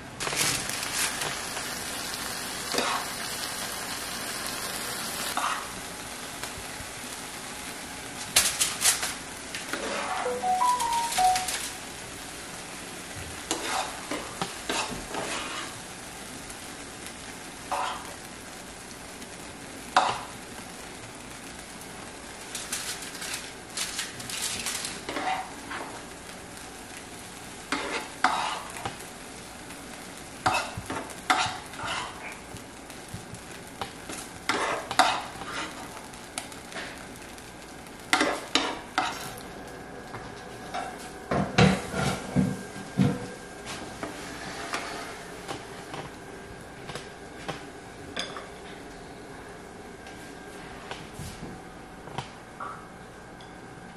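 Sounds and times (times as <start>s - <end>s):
pan sizzling: 0.0s - 48.6s
metal spoon scraping a frying pan: 13.5s - 14.0s, 27.7s - 28.8s.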